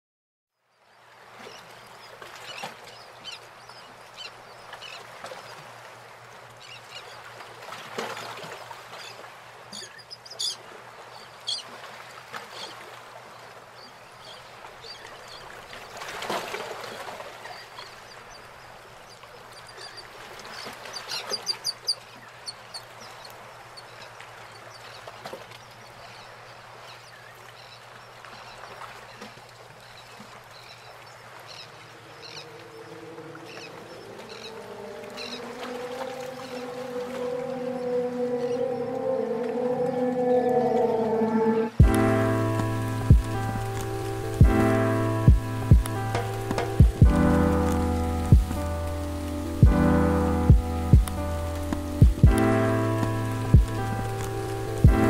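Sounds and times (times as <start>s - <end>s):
birds calling: 30.6s - 48.7s
steady rushing background: 41.4s - 55.0s.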